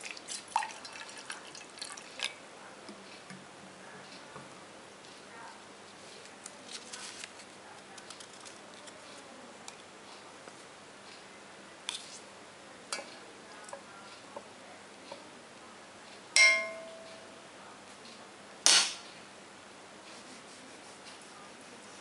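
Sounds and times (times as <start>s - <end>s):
knife clinking against enamel mug: 16.4s - 17.1s.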